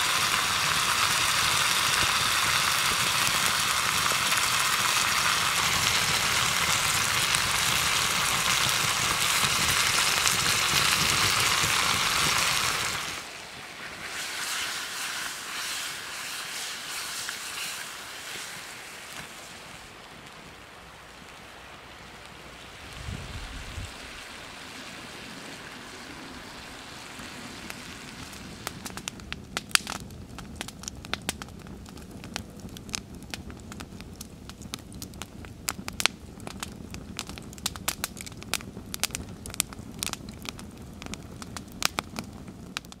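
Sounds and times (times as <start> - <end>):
steady hiss: 0.0 - 30.0
wood fire crackling and popping: 0.0 - 43.0.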